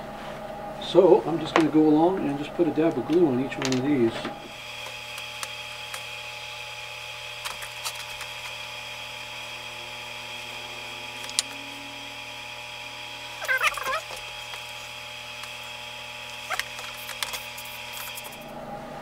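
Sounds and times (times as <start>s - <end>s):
workshop background hum: 0.0s - 19.0s
faint high whine: 8.5s - 18.5s.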